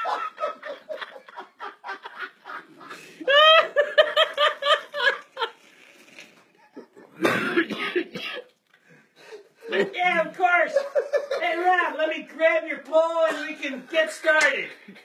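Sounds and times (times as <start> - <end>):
man laughing: 0.0 - 5.2, 9.7 - 11.9.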